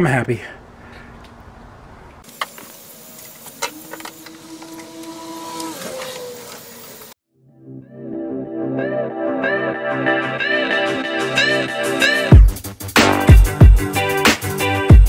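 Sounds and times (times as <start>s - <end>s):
small electric motor whirring: 2.3s - 7.2s.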